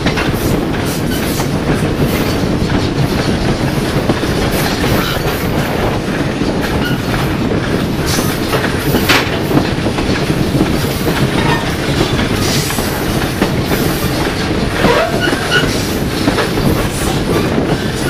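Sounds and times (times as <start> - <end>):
train wheels rumbling over rails: 0.0 - 18.0.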